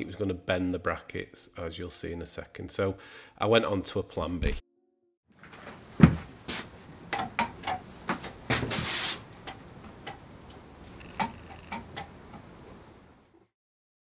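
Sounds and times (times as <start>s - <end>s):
footsteps on concrete floor: 5.4s - 6.8s
heavy thud: 6.0s - 6.3s.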